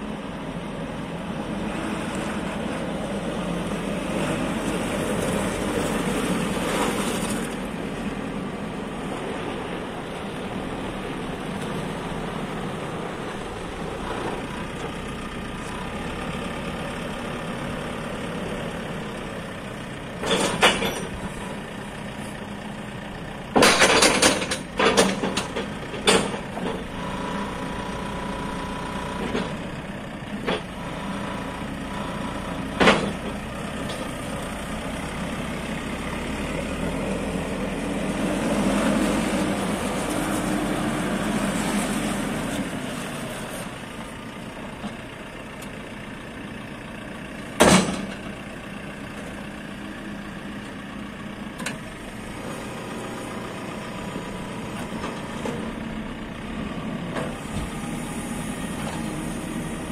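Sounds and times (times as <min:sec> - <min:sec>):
diesel engine running: 0:00.0 - 0:59.9
sharp clunks: 0:47.6 - 0:48.2.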